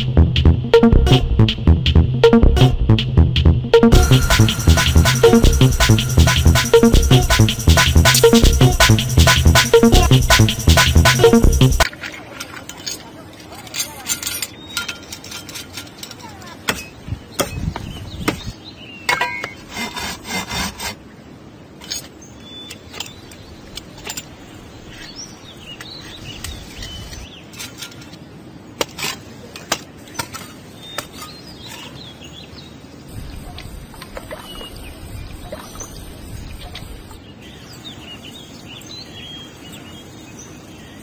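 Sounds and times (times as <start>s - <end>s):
metal parts clicking and clinking: 12.4s - 17.0s, 21.8s - 22.1s, 22.7s - 24.4s, 25.8s - 28.2s.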